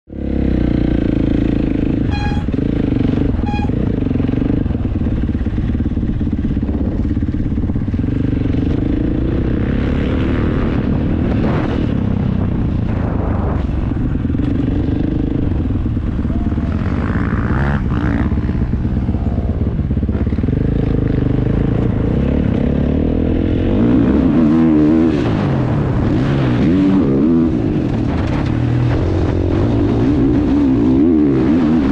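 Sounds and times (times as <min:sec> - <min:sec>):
motocross bike engine revving: 0:00.1 - 0:31.9
wind and track noise: 0:00.1 - 0:31.9.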